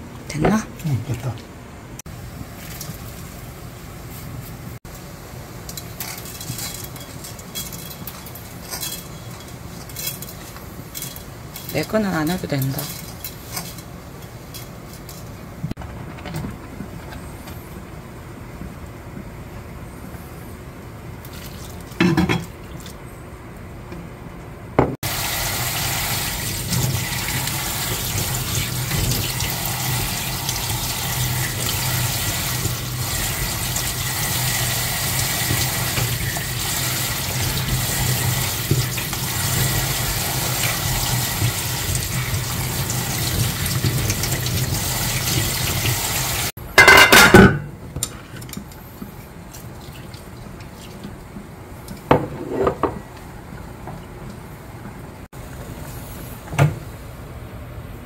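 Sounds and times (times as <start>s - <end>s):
faucet water running: 25.0s - 46.6s.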